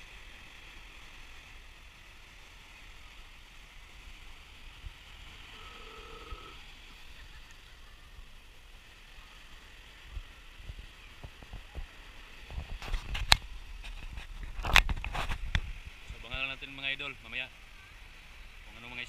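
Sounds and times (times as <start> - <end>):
small waves breaking on sand: 0.0 - 19.0
wind rumbling on microphone: 10.0 - 16.6.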